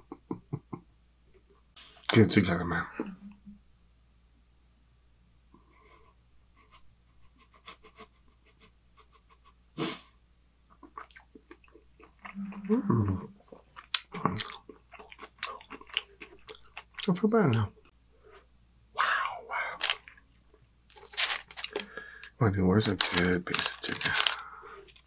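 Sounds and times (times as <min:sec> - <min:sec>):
man chewing with wet clicks: 0:10.7 - 0:12.4, 0:13.0 - 0:17.6
low vocal sounds: 0:12.4 - 0:13.4.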